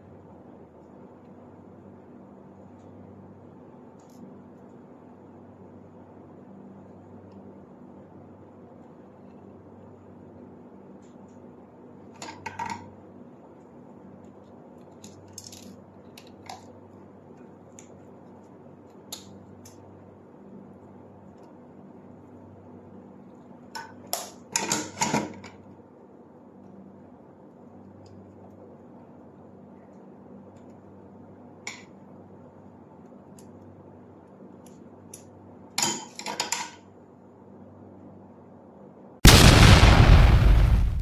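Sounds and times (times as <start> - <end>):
faint low hum: 0.0 - 24.6.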